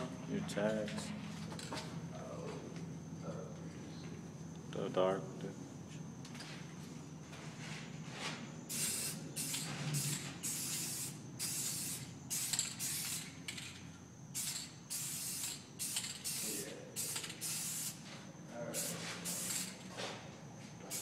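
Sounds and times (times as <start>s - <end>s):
spray paint can hissing: 8.7s - 13.6s, 14.3s - 18.0s, 18.8s - 19.8s.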